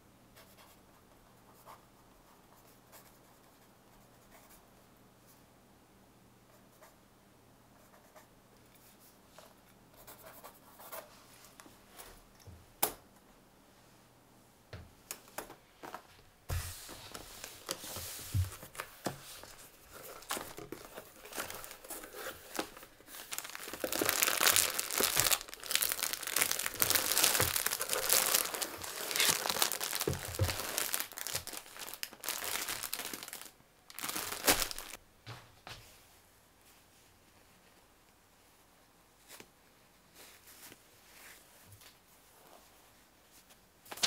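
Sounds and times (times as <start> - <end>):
hands rustling packaging: 16.8 - 35.0.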